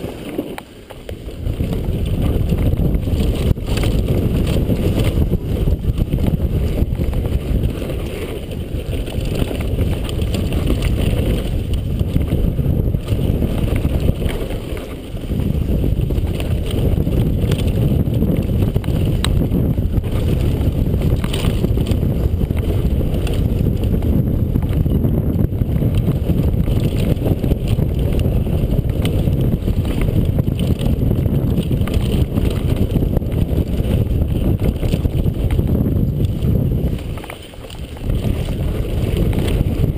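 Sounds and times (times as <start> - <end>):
bike rattling over rocky trail: 0.0 - 39.9
wind buffeting microphone: 0.0 - 39.9.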